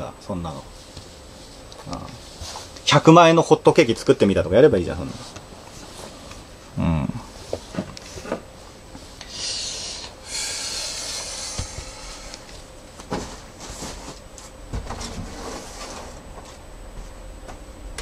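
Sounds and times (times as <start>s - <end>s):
bare footsteps: 12.9s - 15.3s.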